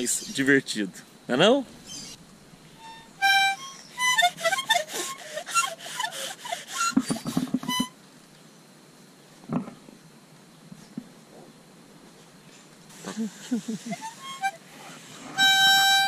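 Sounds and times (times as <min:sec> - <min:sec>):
child playing harmonica: 0:02.8 - 0:08.0, 0:13.9 - 0:16.0.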